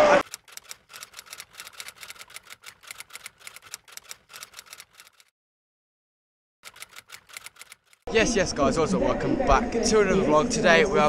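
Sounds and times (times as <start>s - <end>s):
typewriter key clicks: 6.7s - 8.0s.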